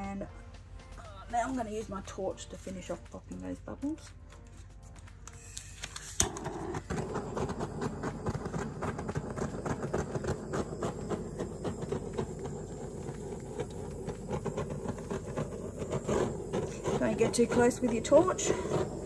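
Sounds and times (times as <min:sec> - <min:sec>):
butane torch hissing: 0:05.4 - 0:19.0.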